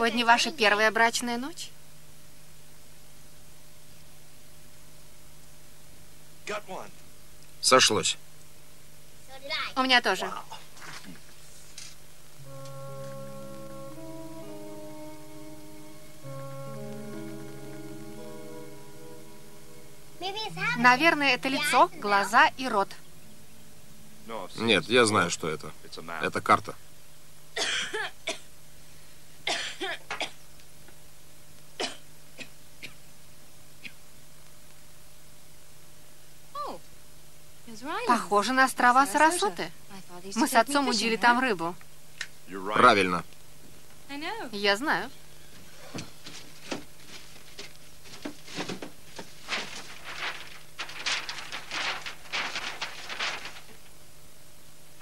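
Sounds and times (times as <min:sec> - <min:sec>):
person coughing: 0:27.6 - 0:28.5, 0:29.5 - 0:30.4, 0:31.8 - 0:33.0
stiff paper crackling and rustling: 0:45.6 - 0:54.1.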